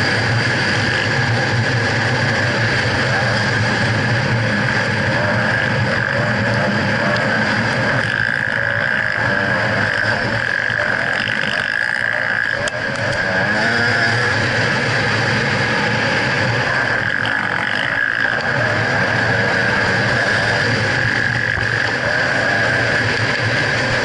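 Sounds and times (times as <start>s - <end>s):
motorcycle engine revving: 0.0s - 24.0s.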